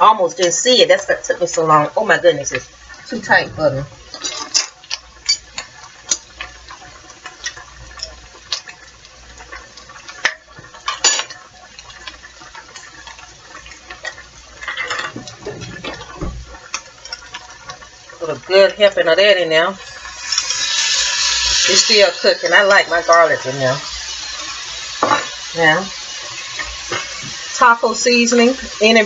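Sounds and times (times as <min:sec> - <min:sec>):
kitchen utensils clinking: 0:03.3 - 0:05.7, 0:10.8 - 0:11.4, 0:14.1 - 0:16.3, 0:25.0 - 0:25.8.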